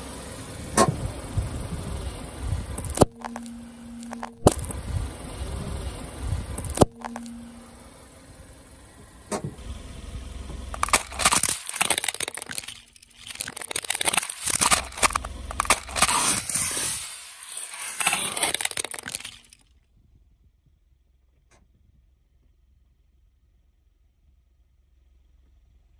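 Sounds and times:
low car rumble: 0:00.0 - 0:11.4, 0:14.6 - 0:16.7
plastic toy and candy crunching: 0:02.6 - 0:04.9, 0:06.4 - 0:07.6, 0:10.7 - 0:19.7.

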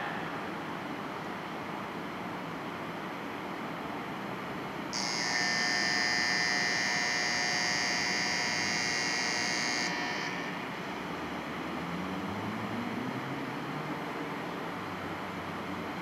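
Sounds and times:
steady background hum: 0:00.0 - 0:16.0
electronic departure bell ringing: 0:05.0 - 0:10.8
train motors rising whine: 0:05.0 - 0:16.0.

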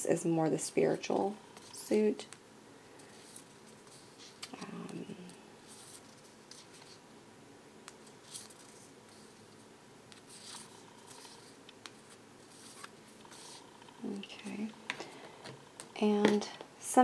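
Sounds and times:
cards sliding and swishing: 0:10.1 - 0:13.7.

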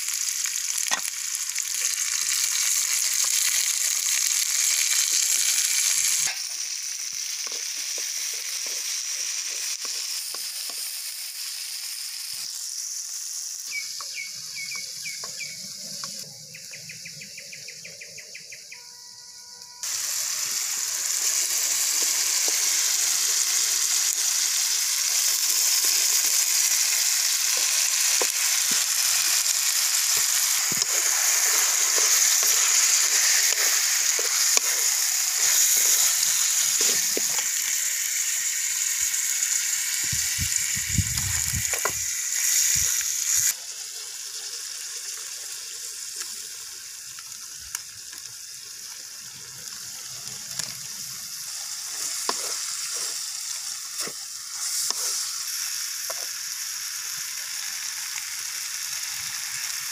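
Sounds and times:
meat sizzling in a pan: 0:00.0 - 0:19.0, 0:19.8 - 0:59.9
wooden spoon stirring in pan: 0:07.4 - 0:10.9, 0:25.8 - 0:37.6, 0:51.9 - 0:53.3, 0:54.0 - 0:55.3.

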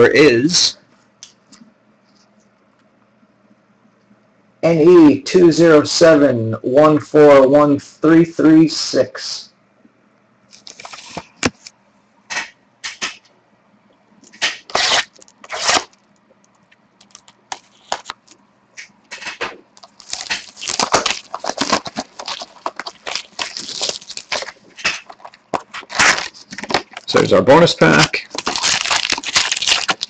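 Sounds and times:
plastic wrap tearing and crinkling: 0:10.5 - 0:11.5, 0:14.3 - 0:16.1, 0:17.0 - 0:18.4, 0:19.2 - 0:27.1, 0:27.9 - 0:30.0.

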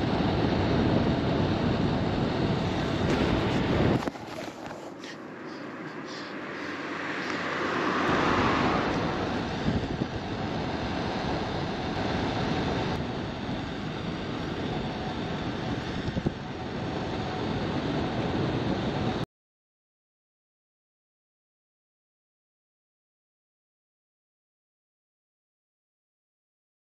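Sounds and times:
road and traffic noise: 0:00.0 - 0:19.2
wind rushing over microphone: 0:00.0 - 0:19.2.

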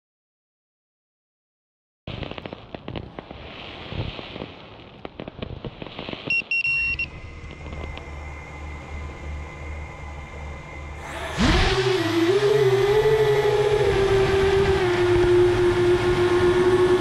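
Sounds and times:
crackling clicks: 0:02.1 - 0:06.6, 0:07.4 - 0:08.1
short electronic beeps: 0:06.3 - 0:07.2
quadcopter motors whining: 0:07.3 - 0:17.0.

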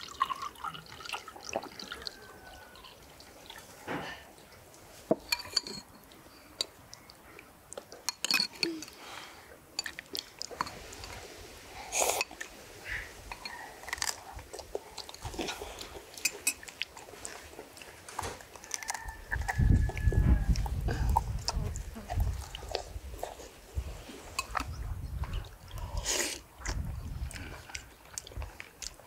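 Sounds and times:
spoons clinking on bowls: 0:05.2 - 0:06.0, 0:08.0 - 0:09.0
chewing: 0:09.8 - 0:11.3, 0:13.2 - 0:29.0.

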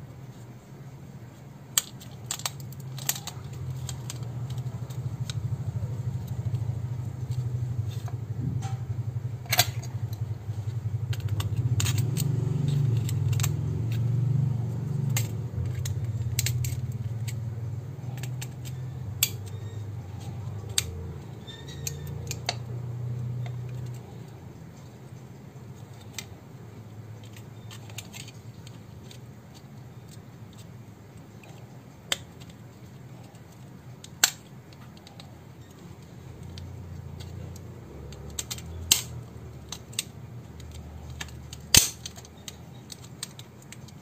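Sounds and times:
steady low hum: 0:00.0 - 0:44.0
plastic housing clicks and snaps: 0:01.8 - 0:06.6, 0:11.1 - 0:14.1, 0:14.8 - 0:21.2, 0:27.2 - 0:30.7, 0:33.3 - 0:44.0.

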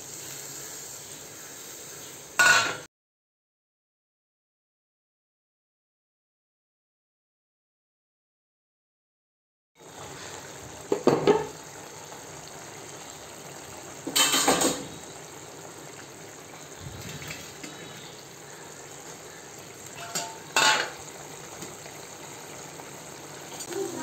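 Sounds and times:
meat sizzling in a pan: 0:00.0 - 0:02.9, 0:09.8 - 0:24.0
metal spatula scraping a pan: 0:14.1 - 0:14.9, 0:20.0 - 0:21.0.

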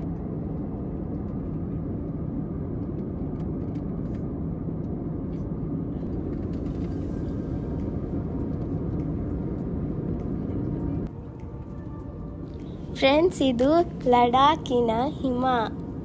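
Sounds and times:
airliner cabin noise: 0:00.0 - 0:16.0.

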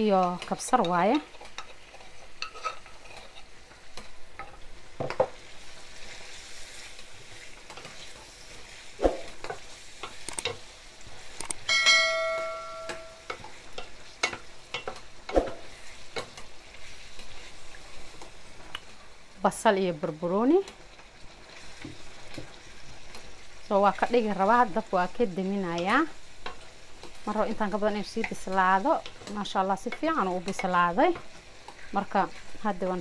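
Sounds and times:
meat sizzling in a pan: 0:00.0 - 0:33.0
wooden spatula scraping: 0:00.2 - 0:03.8, 0:05.4 - 0:10.2
bell-like chime: 0:11.7 - 0:13.3.

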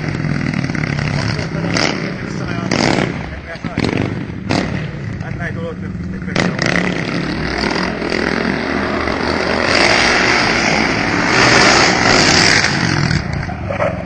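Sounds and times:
quad bike engine running hard: 0:00.0 - 0:14.0.

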